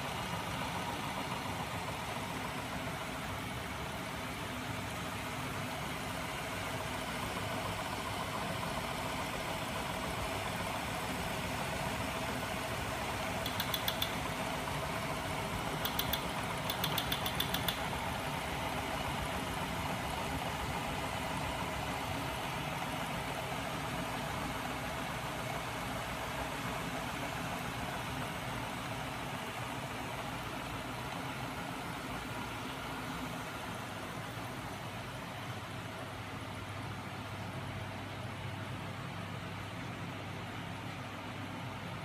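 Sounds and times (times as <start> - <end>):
quick sharp ticks: 13.4 - 14.2, 15.8 - 17.9.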